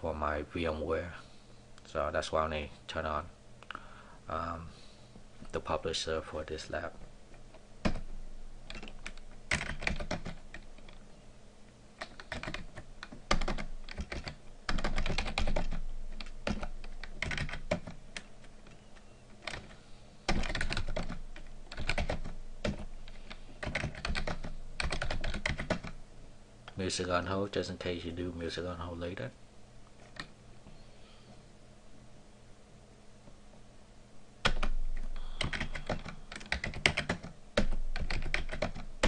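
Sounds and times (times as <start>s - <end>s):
keyboard typing: 7.8s - 11.0s, 12.0s - 26.0s, 34.4s - 38.9s.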